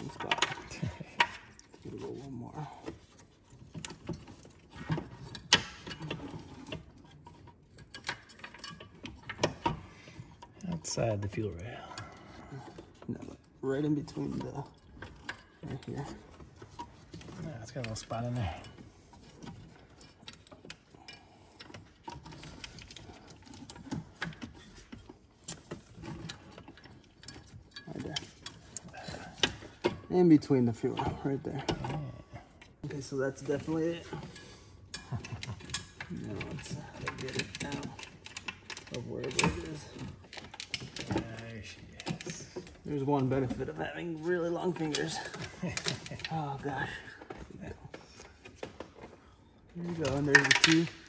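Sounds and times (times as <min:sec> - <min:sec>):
small metal parts clicking and rattling: 0:00.0 - 0:51.0.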